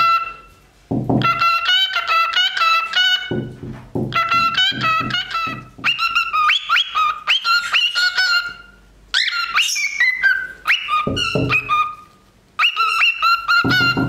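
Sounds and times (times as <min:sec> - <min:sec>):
cockatiel calling: 0:04.1 - 0:14.0.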